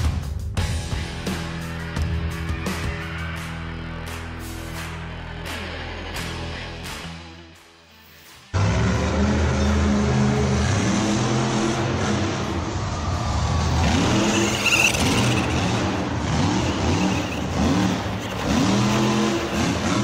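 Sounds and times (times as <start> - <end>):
motor humming and revving: 8.6 - 20.0.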